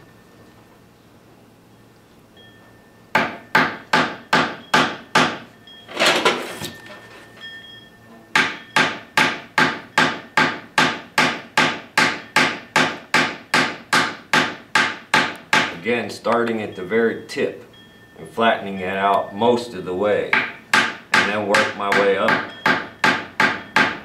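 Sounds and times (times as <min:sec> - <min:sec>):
hammer striking metal: 0:03.1 - 0:06.8, 0:08.3 - 0:15.8, 0:20.3 - 0:24.0.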